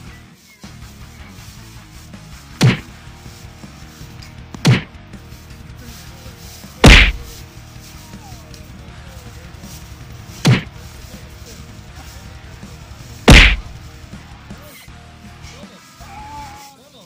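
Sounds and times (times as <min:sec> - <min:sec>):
faint background music: 0:00.0 - 0:17.0
sharp whacks: 0:02.6 - 0:02.9, 0:04.6 - 0:04.9, 0:06.8 - 0:07.4, 0:10.4 - 0:10.7, 0:13.3 - 0:13.8.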